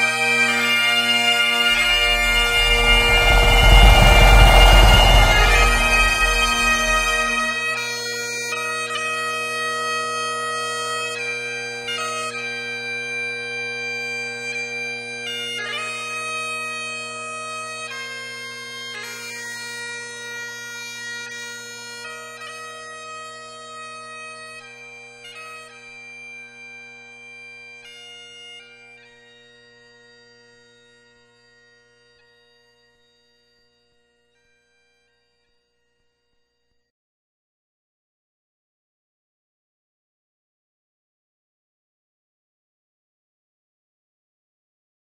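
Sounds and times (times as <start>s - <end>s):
bagpipe melody over drones: 0.0s - 7.7s
deep low rumble: 1.7s - 7.6s.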